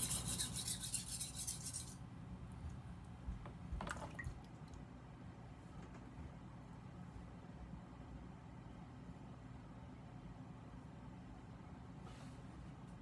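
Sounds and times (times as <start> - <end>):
knife scraping on whetstone: 0.0 - 2.0.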